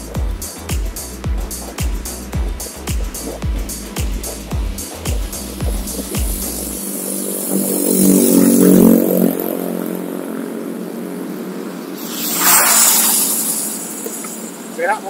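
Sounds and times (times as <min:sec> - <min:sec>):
steady road noise: 0:00.0 - 0:14.8
vehicle engine passing: 0:05.9 - 0:10.1.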